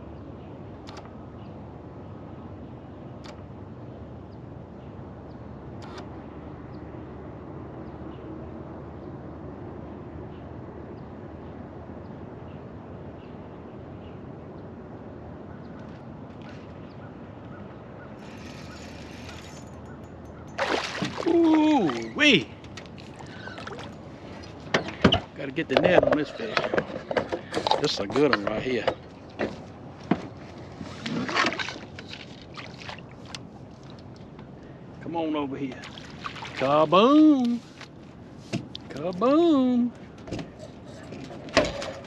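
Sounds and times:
outdoor background noise on water: 0.0s - 42.0s.

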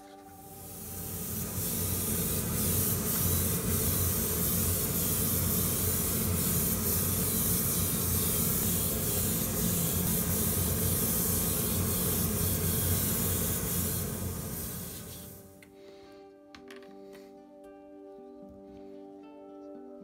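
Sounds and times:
airbrush spraying hiss: 0.0s - 15.6s.

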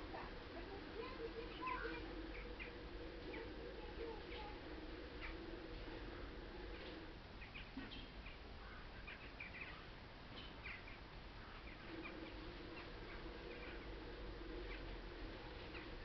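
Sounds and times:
low steady drone: 0.0s - 7.6s, 11.2s - 16.0s.

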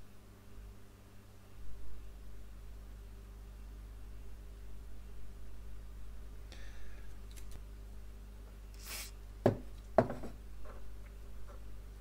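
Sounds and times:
low electrical hum: 0.0s - 12.0s
cotton swab scrubbing circuit board: 8.8s - 9.1s.

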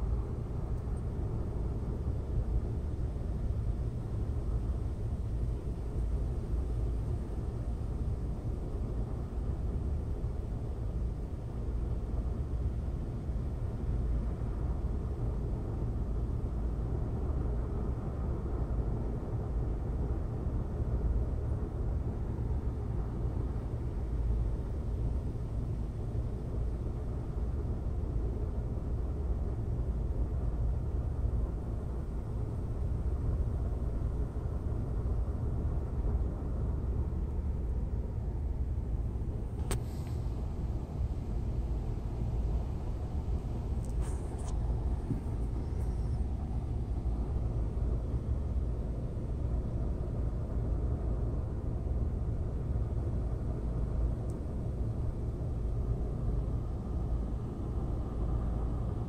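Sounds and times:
low rumbling background noise: 0.0s - 59.0s
sharp click: 39.6s - 40.2s.

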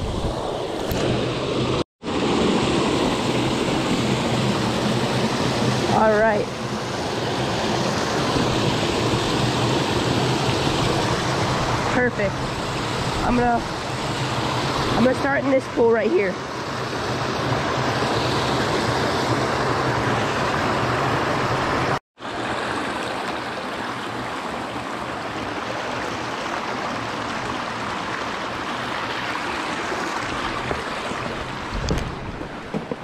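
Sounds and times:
water rushing over rocks: 0.0s - 33.0s
knocks: 31.8s - 33.0s.

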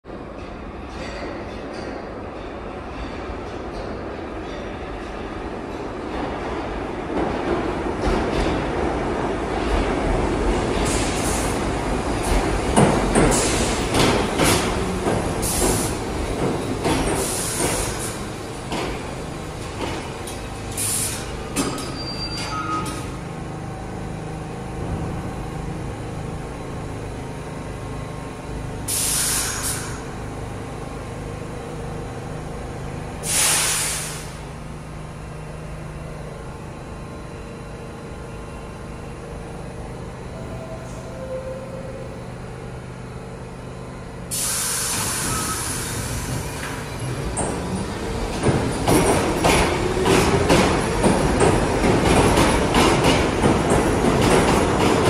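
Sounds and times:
stopped train humming: 5.5s - 55.0s
train clattering over rail joints: 9.6s - 23.2s, 44.3s - 55.0s
air hissing: 20.7s - 21.4s, 28.9s - 30.1s, 33.2s - 34.4s, 44.3s - 46.8s
brake squeals: 20.8s - 23.1s, 44.3s - 47.8s.

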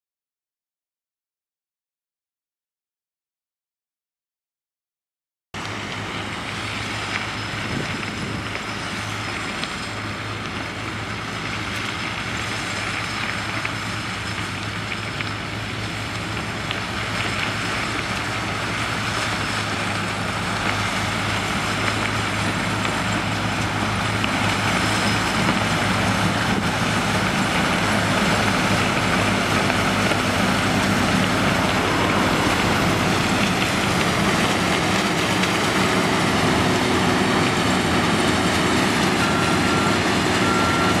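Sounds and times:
low engine hum: 5.6s - 41.0s
harvester mechanical din: 22.3s - 39.1s.

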